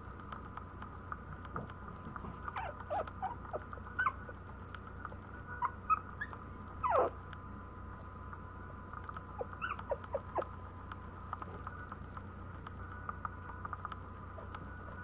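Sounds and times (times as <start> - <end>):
puppies squeaking and whimpering: 2.5 - 4.4, 5.5 - 7.2, 9.4 - 10.5.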